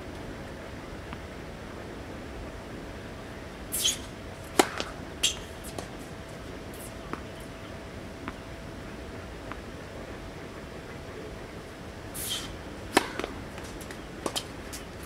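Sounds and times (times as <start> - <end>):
short high scrapes: 3.7 - 4.1, 12.2 - 12.6
tennis racket hitting ball: 3.8 - 5.9, 12.2 - 14.5.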